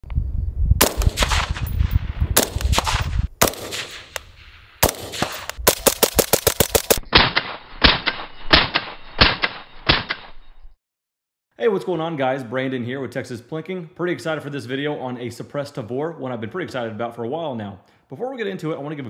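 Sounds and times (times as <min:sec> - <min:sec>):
suppressed rifle shots: 0:00.8 - 0:10.1.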